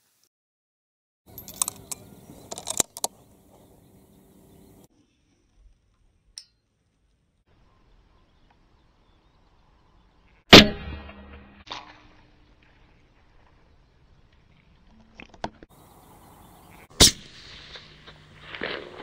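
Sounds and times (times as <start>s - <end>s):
rifle bolt clicks and knocks: 1.3s - 3.2s.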